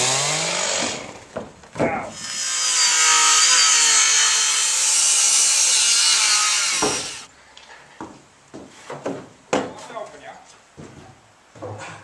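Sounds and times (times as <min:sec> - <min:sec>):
circular saw cutting wood: 0:00.0 - 0:01.1, 0:02.1 - 0:07.3.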